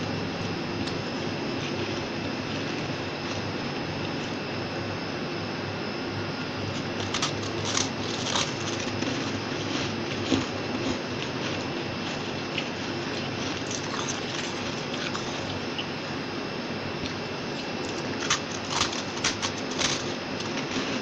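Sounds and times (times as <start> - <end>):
person crunching frost: 0.0 - 4.4, 6.7 - 15.8, 17.0 - 21.0.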